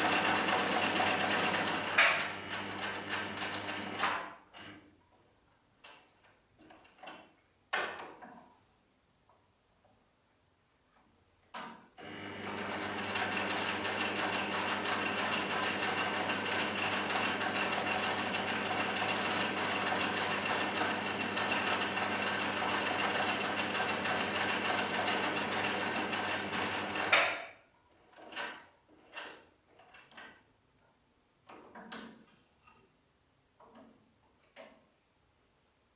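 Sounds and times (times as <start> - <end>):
sewing machine stitching: 0.0 - 4.8, 12.0 - 30.4.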